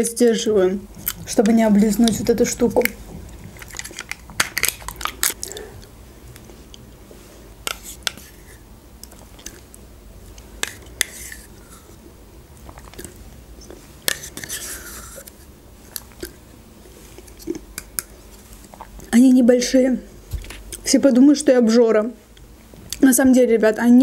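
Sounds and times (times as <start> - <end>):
spoon scraping cup: 11.0 - 11.9, 14.1 - 15.3.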